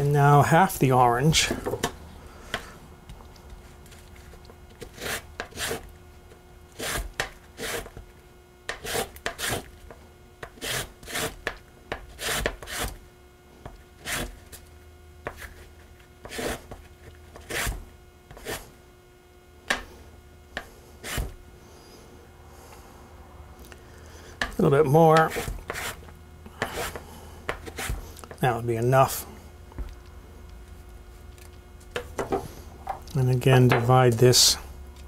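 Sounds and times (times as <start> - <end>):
peel scraping on metal grater: 4.8 - 5.9, 6.7 - 8.0, 8.7 - 9.7, 10.4 - 11.5, 12.1 - 13.0, 14.0 - 14.4.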